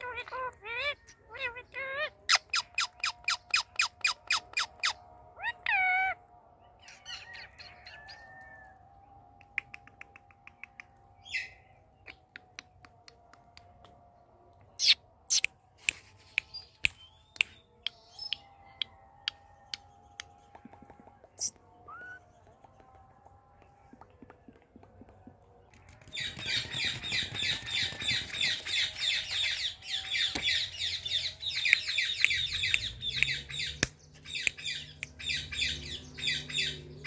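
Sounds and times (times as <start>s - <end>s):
parrot chirps and calls: 0.0s - 6.2s.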